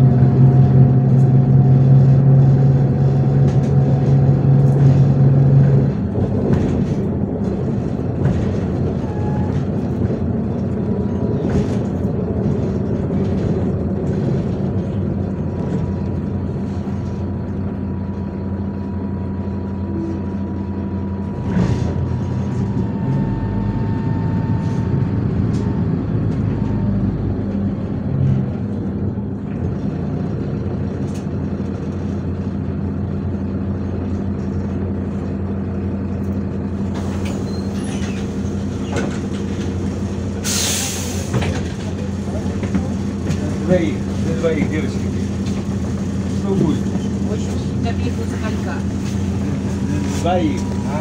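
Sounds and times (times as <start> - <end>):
bus diesel engine running: 0.0 - 51.0.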